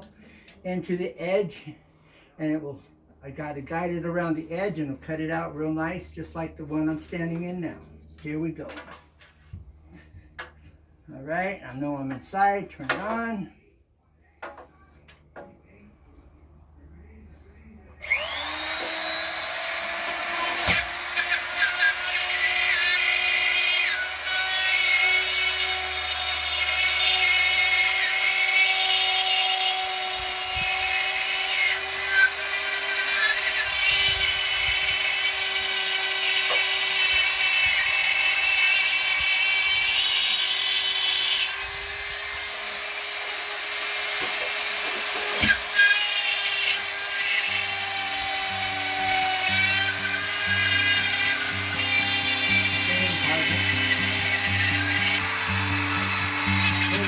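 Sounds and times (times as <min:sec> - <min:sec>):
spiral saw cutting drywall: 0:18.0 - 0:57.0.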